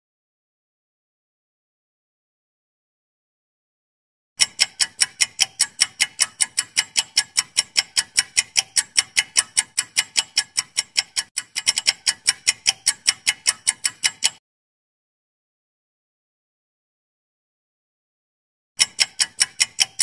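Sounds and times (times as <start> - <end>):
clock ticking fast: 4.4 - 14.4, 18.8 - 20.0.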